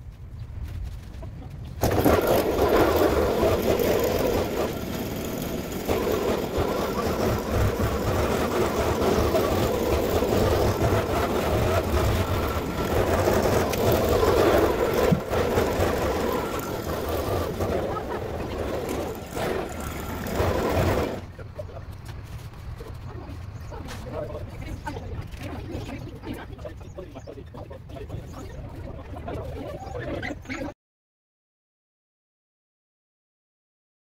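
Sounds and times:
brushcutter engine running: 1.8s - 21.2s.

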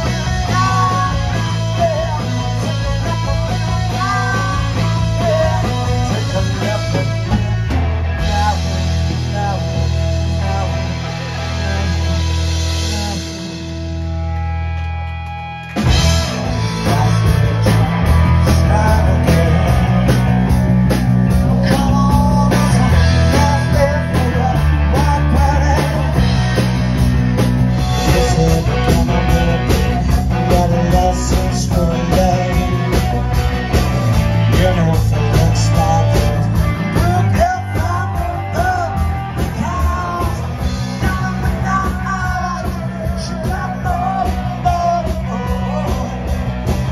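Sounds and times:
man singing: 0.0s - 14.1s, 15.9s - 20.5s, 21.3s - 27.0s, 27.7s - 46.9s
drums: 0.0s - 46.9s
live rock band playing: 0.0s - 46.9s.

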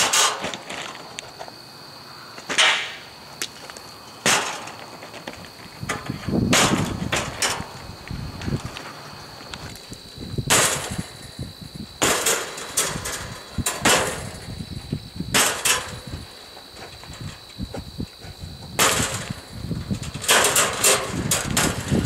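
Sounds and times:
rocks hitting roof covering: 0.0s - 1.5s, 2.4s - 7.8s, 10.4s - 11.3s, 12.0s - 14.6s, 15.3s - 16.2s, 18.7s - 22.0s.

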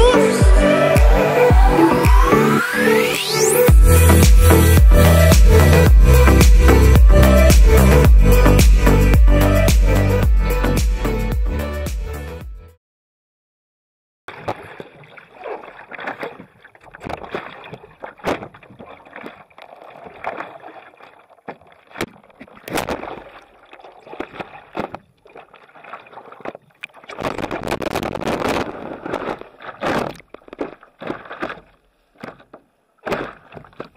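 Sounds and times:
rush of water: 14.3s - 33.9s
water splashing around paddleboard: 14.3s - 33.9s.

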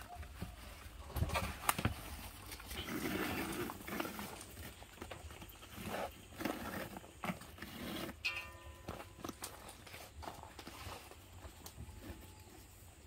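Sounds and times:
scrapes: 0.3s - 12.9s.

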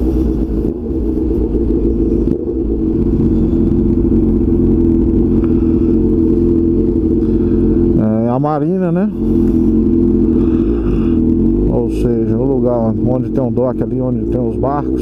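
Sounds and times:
motorcycle engine running steadily: 0.0s - 15.0s.

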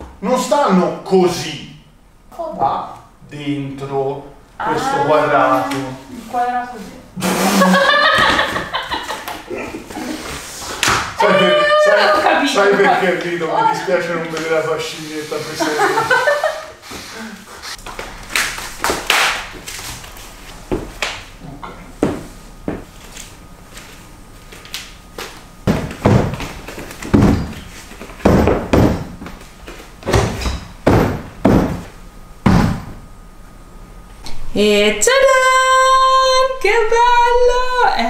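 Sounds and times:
furniture thuds and knocks on floor: 25.6s - 29.4s, 30.0s - 33.0s.

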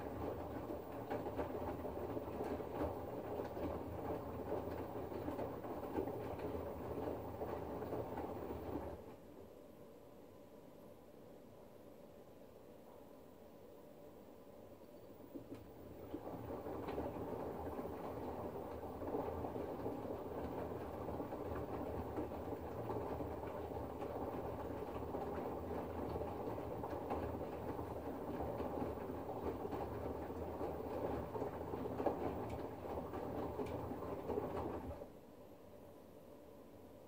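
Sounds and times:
washing machine drum tumbling laundry: 0.0s - 9.1s, 15.3s - 35.1s.

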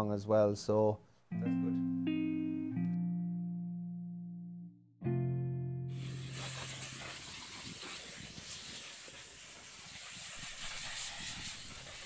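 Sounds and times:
low guitar note: 1.3s - 6.2s
steady outdoor hiss: 5.9s - 12.0s.

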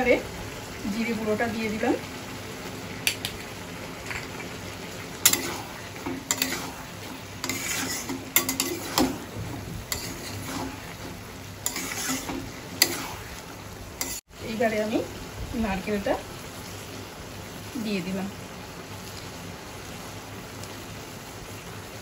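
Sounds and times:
vegetables sizzling: 0.0s - 22.0s
spatula scraping metal pan: 5.2s - 13.4s, 14.0s - 14.2s.

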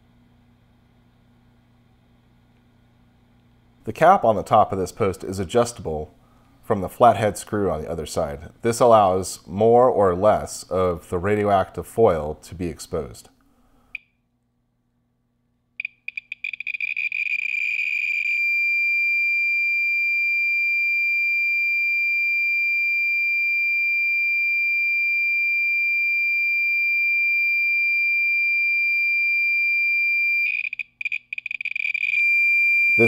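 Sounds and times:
radiation meter clicking: 15.8s - 18.4s, 30.5s - 32.4s
steady high-pitched tone: 30.4s - 33.0s.

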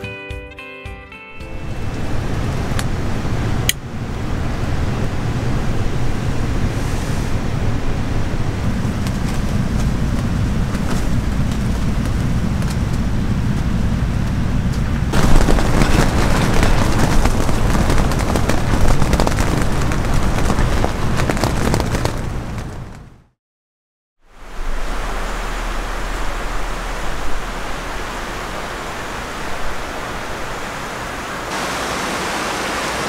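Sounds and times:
stream rushing: 15.1s - 18.8s, 24.3s - 33.0s.

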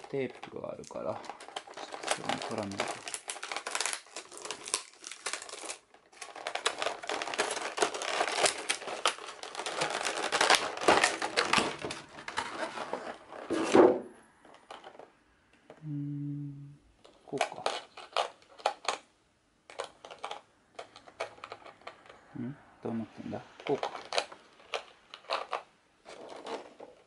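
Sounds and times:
plastic packaging crinkling: 0.0s - 13.8s, 17.0s - 19.0s, 23.5s - 27.0s.

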